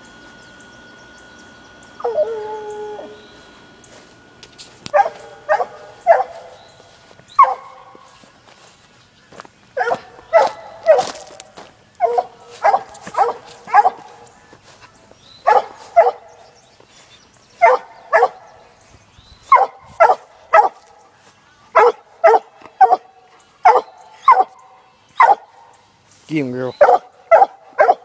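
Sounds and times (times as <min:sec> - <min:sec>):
dog barking: 0:04.9 - 0:06.6, 0:07.4 - 0:08.1, 0:09.8 - 0:11.2, 0:12.0 - 0:14.2, 0:15.4 - 0:16.3, 0:17.6 - 0:18.6, 0:19.5 - 0:20.8, 0:21.8 - 0:24.6, 0:25.2 - 0:25.6, 0:26.8 - 0:28.0.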